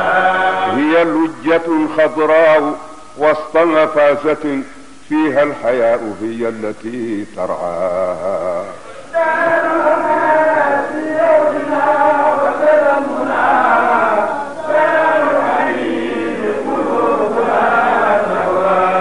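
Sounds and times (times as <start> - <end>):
men chanting: 0.0 - 1.7, 8.3 - 19.0.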